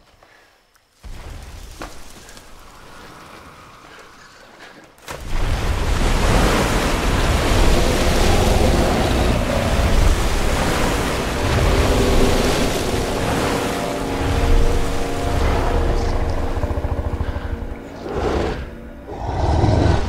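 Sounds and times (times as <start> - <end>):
water churning and splashing: 1.0 - 19.0
deep rumble: 14.0 - 20.0.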